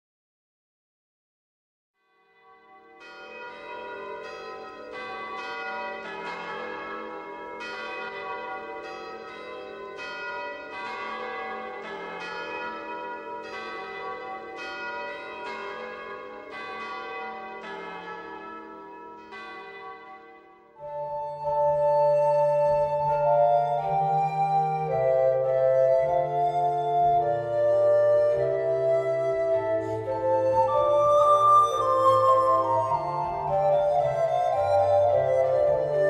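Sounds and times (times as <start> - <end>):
church bells pealing: 2.4 - 36.0.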